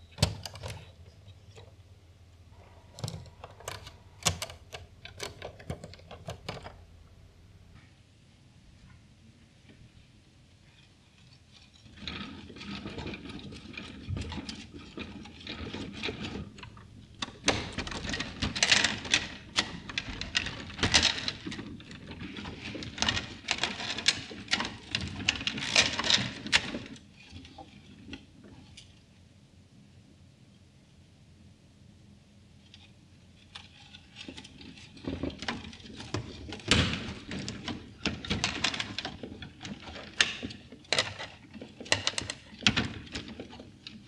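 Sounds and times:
plastic gears clattering: 2.9s - 6.8s, 11.8s - 27.0s.

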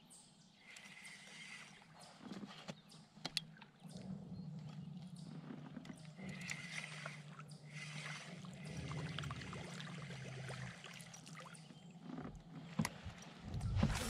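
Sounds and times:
fishing reel whirring: 0.6s - 1.9s, 6.2s - 9.4s.

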